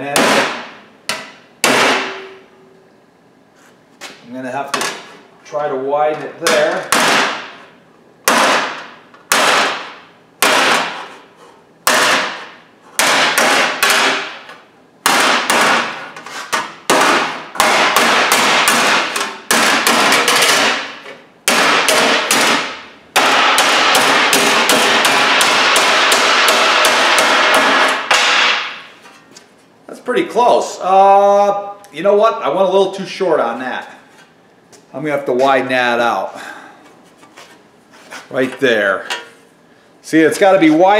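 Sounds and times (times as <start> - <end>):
hammer pounding sheet steel: 0.0 - 0.8, 1.6 - 2.4, 8.3 - 28.9.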